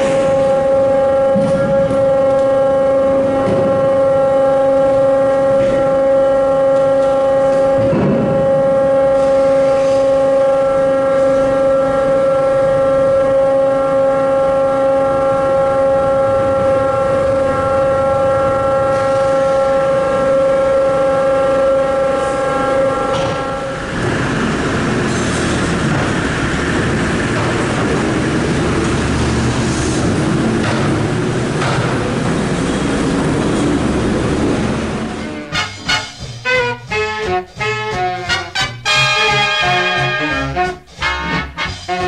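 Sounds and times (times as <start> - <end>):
ship machinery humming: 0.0 - 42.0.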